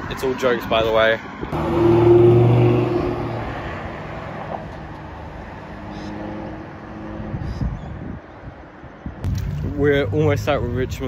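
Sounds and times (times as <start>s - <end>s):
road traffic noise: 0.0s - 11.0s
sports car engine passing: 1.4s - 7.4s
car engine hum passing: 1.5s - 7.5s.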